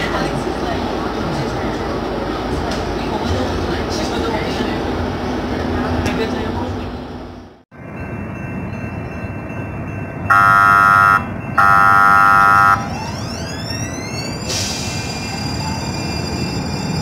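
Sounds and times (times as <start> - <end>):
trolley rumble: 0.0 - 17.0
trolley horn blasts: 10.3 - 12.9.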